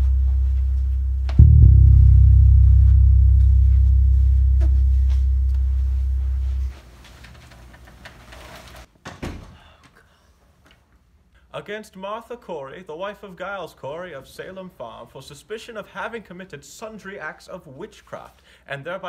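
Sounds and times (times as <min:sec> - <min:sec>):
deep low music drone: 0:00.0 - 0:06.8.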